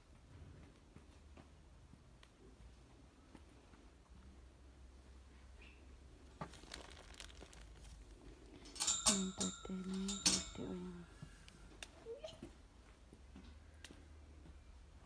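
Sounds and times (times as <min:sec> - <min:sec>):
bell-like ringing: 0:08.8 - 0:11.0.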